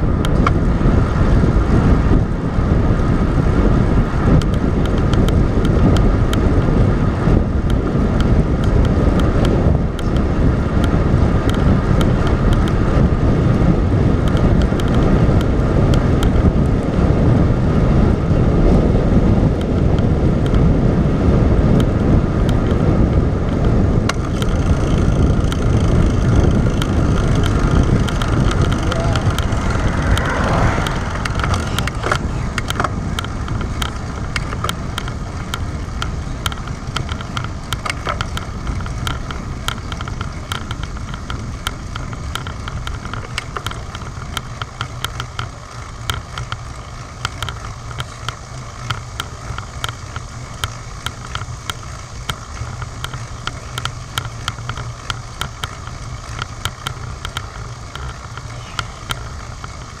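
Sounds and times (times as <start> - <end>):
bicycle tyre rumble: 0.0 - 60.0
wind rushing over camera: 0.0 - 60.0
light ticks: 4.3 - 6.6, 7.6 - 12.8, 14.2 - 16.9, 19.6 - 20.7, 21.7 - 60.0
car passing: 25.1 - 34.2.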